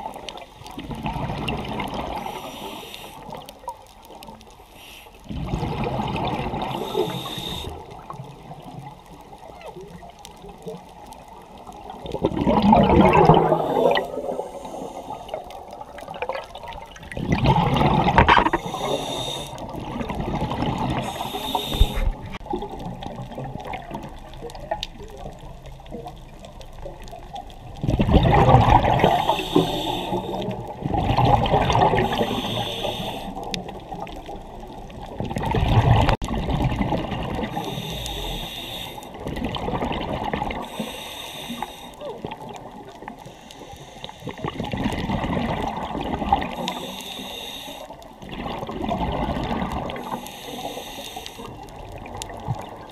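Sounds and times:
exhaled bubbles rushing: 0:00.0 - 0:02.4, 0:05.3 - 0:09.0, 0:11.4 - 0:26.5, 0:27.1 - 0:32.6, 0:33.4 - 0:38.4, 0:39.1 - 0:40.7, 0:44.3 - 0:46.8, 0:48.2 - 0:50.2
hissing regulator inhalations: 0:02.1 - 0:03.4, 0:04.7 - 0:05.3, 0:06.6 - 0:07.9, 0:13.4 - 0:15.6, 0:18.3 - 0:19.8, 0:21.0 - 0:22.4, 0:29.0 - 0:30.6, 0:31.8 - 0:33.5, 0:37.5 - 0:39.2, 0:40.6 - 0:42.0, 0:43.2 - 0:44.6, 0:46.5 - 0:48.0, 0:50.0 - 0:51.6.

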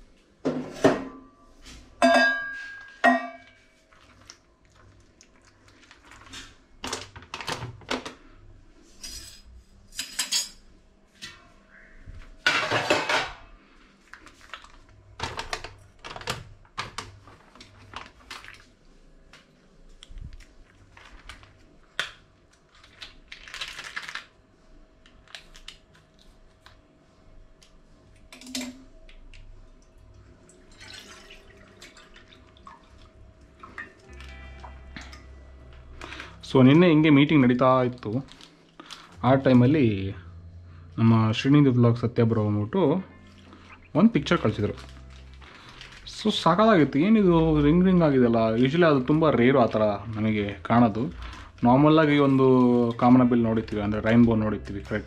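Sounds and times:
pots and utensils clattering: 0:00.5 - 0:01.2, 0:02.0 - 0:03.6, 0:12.4 - 0:13.5.

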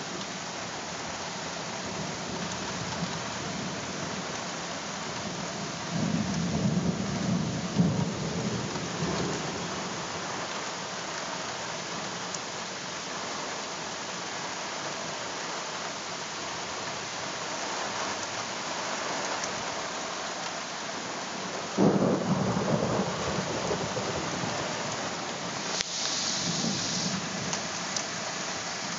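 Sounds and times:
heavy rain: 0:00.0 - 0:28.9
thunder rumbling: 0:21.8 - 0:25.0.

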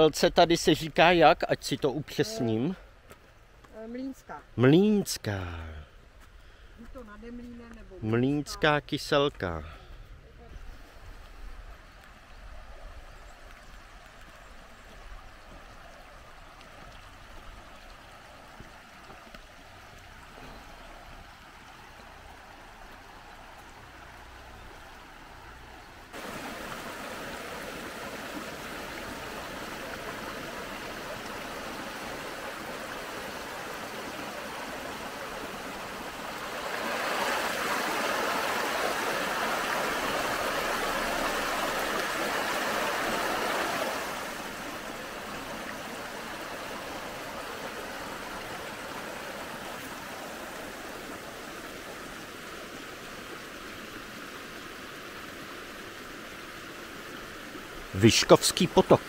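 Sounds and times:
brook running over rocks: 0:00.0 - 0:59.0
water splashing down a cascade: 0:26.1 - 0:54.1.

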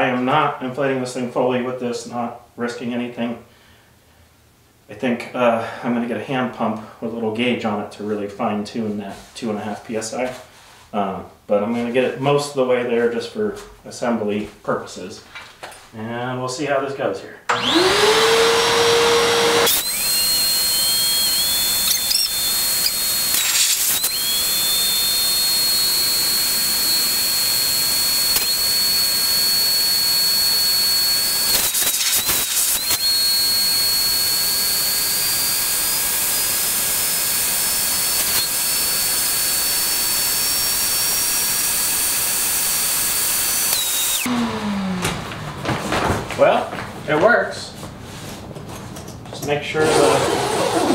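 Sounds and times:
shop vacuum blowing air: 0:17.5 - 0:45.8, 0:49.8 - 0:50.9.

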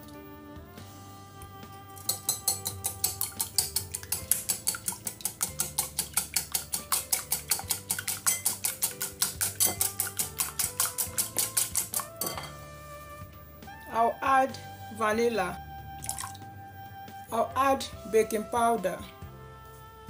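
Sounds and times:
whisk clicking against glass bowl: 0:02.1 - 0:12.5.

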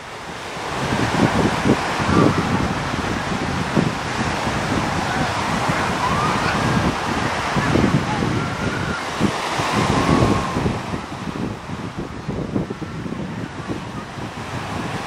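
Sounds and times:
small waves washing: 0:00.0 - 0:15.0
wind buffeting microphone: 0:00.0 - 0:15.0
distant crowd voices and shouts: 0:01.8 - 0:11.6.

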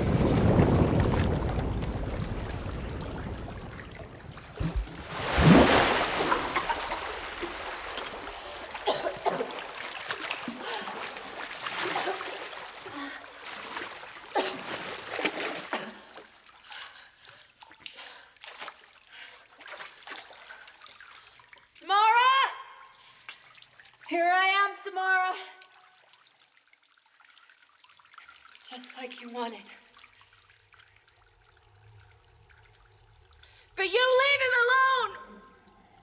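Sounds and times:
loud water splash: 0:00.0 - 0:15.8
water sloshing and dripping: 0:00.0 - 0:36.0.

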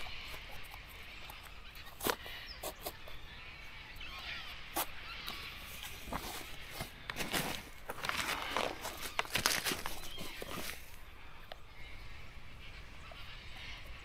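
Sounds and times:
footsteps on dirt track: 0:05.8 - 0:11.0.

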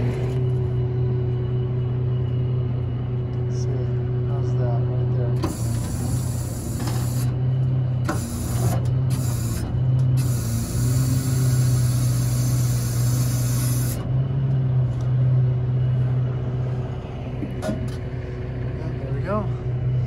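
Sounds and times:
engine running: 0:00.0 - 0:20.0
loud hydraulic hissing: 0:05.4 - 0:07.3, 0:08.1 - 0:09.6, 0:10.2 - 0:14.0.

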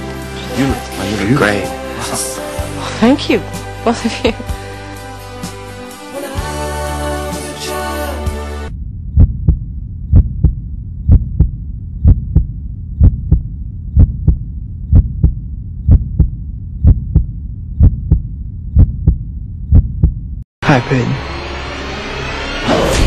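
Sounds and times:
low hum: 0:08.7 - 0:23.0
heartbeat thumps: 0:08.8 - 0:20.5.

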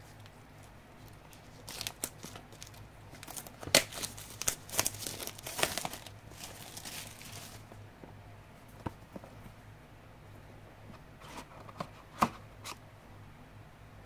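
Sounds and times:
packaging crinkling: 0:01.0 - 0:07.8.

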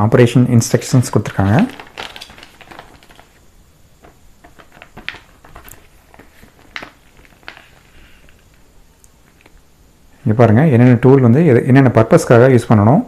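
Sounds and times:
paper sheets rustling: 0:01.3 - 0:03.4, 0:04.4 - 0:08.3.

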